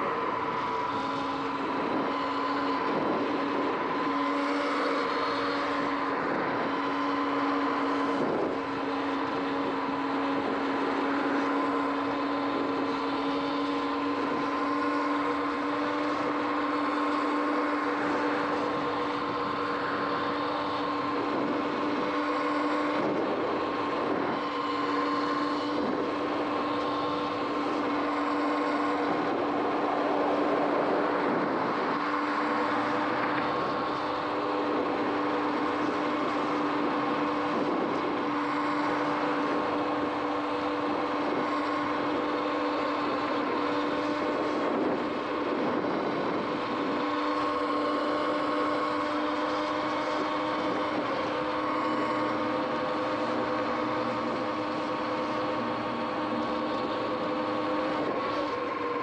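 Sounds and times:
electric motor whining: 0.0s - 59.0s
wind: 0.0s - 59.0s
tyres hissing on wet road: 8.8s - 21.3s, 26.2s - 44.7s.

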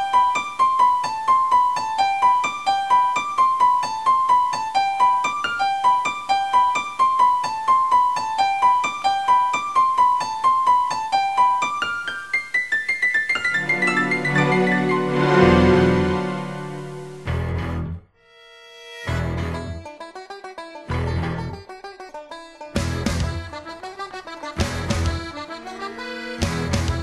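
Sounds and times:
keyboard melody: 0.0s - 18.2s, 22.8s - 27.0s.

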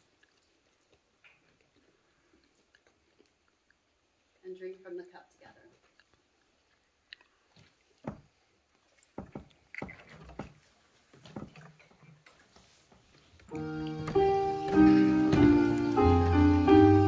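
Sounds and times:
faint handling knocks: 9.2s - 16.4s
keyboard playing slow chords: 13.5s - 17.0s.

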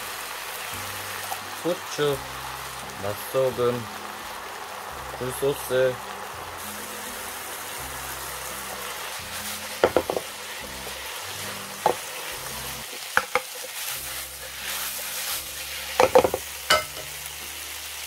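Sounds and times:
mushrooms and onion sizzling in a pan: 0.0s - 18.0s
wooden spoon knocking on pan: 9.8s - 10.3s, 11.8s - 12.1s, 13.2s - 13.5s, 16.0s - 17.1s.

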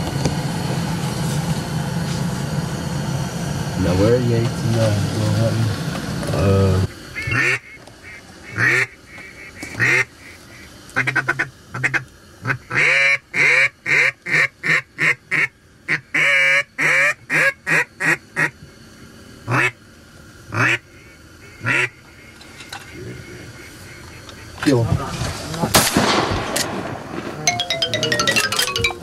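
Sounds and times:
duck call quacks: 7.2s - 18.6s, 19.5s - 19.8s, 20.5s - 22.3s, 22.9s - 24.6s.

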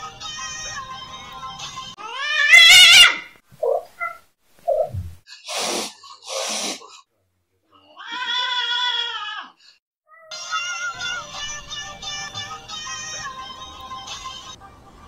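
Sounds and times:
cat meowing: 2.0s - 4.2s
cat yowling: 2.0s - 4.2s
cat hissing: 2.5s - 7.0s.

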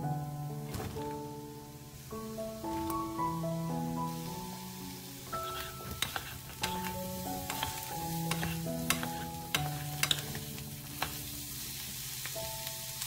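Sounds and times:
vegetables sizzling in oil: 0.6s - 13.0s
spatulas clicking against pan: 5.4s - 11.2s.

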